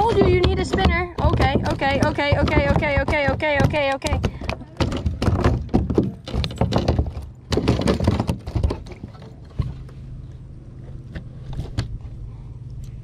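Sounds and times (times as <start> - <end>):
knocks on plastic kayak hull: 0.0 - 8.9.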